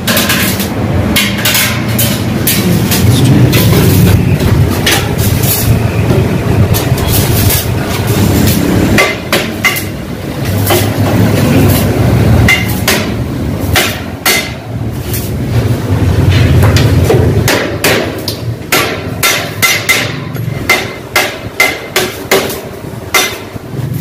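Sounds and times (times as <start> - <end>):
hammer striking metal: 0.0 - 15.3, 16.2 - 24.0
low rumble: 2.3 - 7.0.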